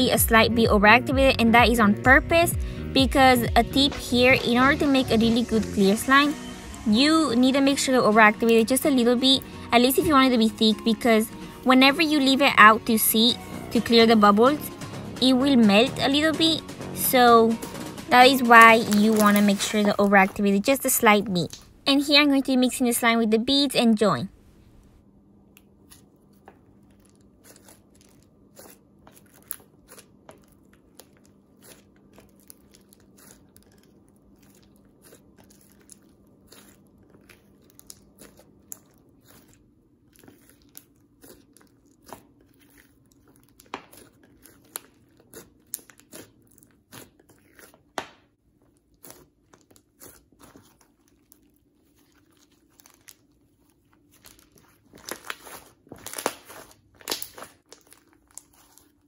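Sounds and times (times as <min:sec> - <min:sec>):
slime clicking and popping: 0:56.0 - 0:58.8.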